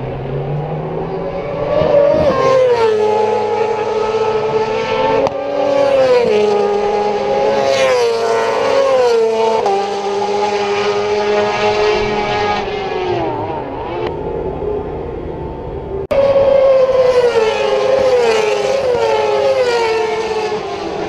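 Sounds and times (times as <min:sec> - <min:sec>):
race motorcycle engine at high revs: 0:17.4 - 0:21.0.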